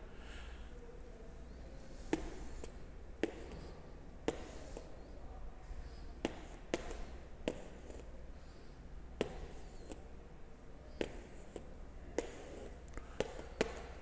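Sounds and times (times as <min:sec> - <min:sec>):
low electrical hum: 0:00.0 - 0:14.0
stylus tapping on tablet: 0:12.2 - 0:14.0.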